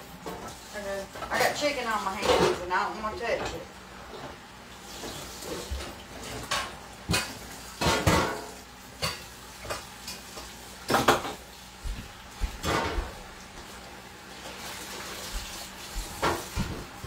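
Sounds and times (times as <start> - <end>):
dishes clattering in metal sink: 0.2 - 13.7, 14.6 - 17.0.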